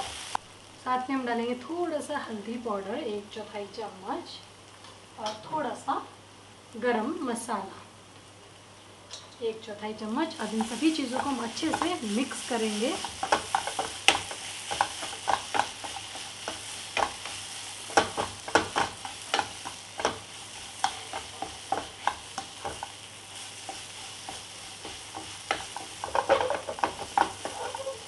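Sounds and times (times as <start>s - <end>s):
onion masala sizzling: 0.0s - 28.0s
wooden spatula scraping frying pan: 10.4s - 28.0s.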